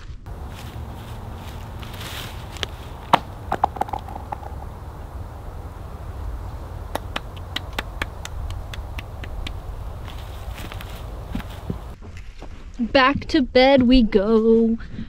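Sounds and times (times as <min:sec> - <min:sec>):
hand claps: 0:06.8 - 0:09.6.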